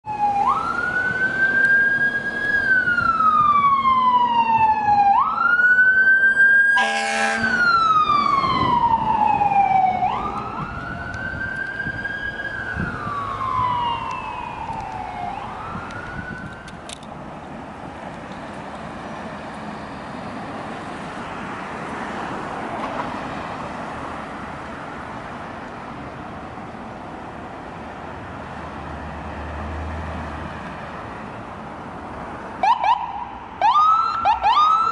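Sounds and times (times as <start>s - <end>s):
ambulance siren wailing: 0.0s - 17.0s, 32.6s - 34.9s
traffic noise: 0.0s - 34.9s
short horn blast: 6.8s - 7.6s.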